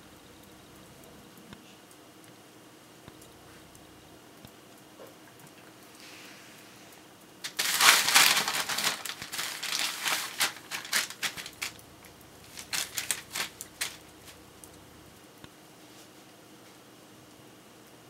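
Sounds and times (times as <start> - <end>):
newspaper crinkling and rustling: 7.4 - 14.8.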